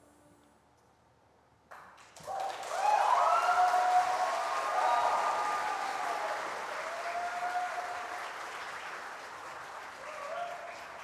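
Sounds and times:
audience applauding: 1.7 - 11.0
audience cheering: 2.2 - 11.0.

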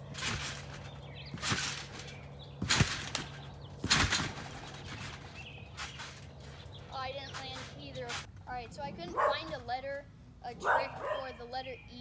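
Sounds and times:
trampoline landing thuds: 0.0 - 8.3.

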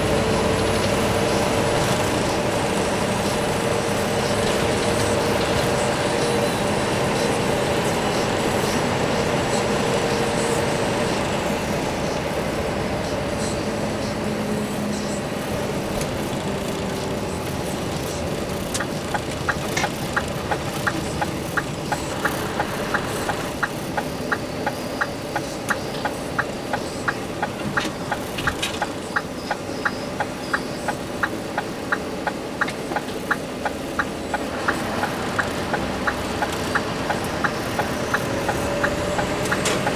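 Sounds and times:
road rumble: 0.0 - 39.9
truck engine running: 0.0 - 39.9
turn signal ticking: 15.8 - 39.9.

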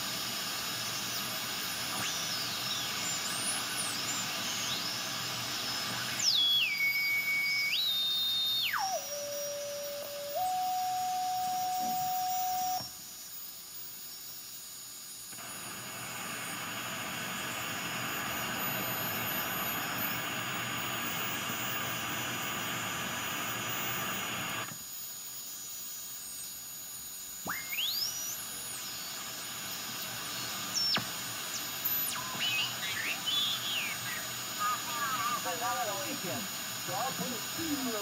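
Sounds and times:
steady radio whistle: 0.0 - 14.3, 15.4 - 24.7, 26.3 - 38.0
radio static hiss: 0.0 - 38.0
sweeping heterodyne whistles: 6.0 - 12.8, 27.5 - 29.0, 30.7 - 36.2.

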